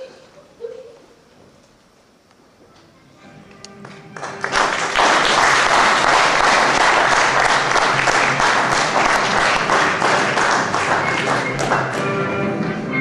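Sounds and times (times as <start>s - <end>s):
audience applauding: 3.8s - 12.2s.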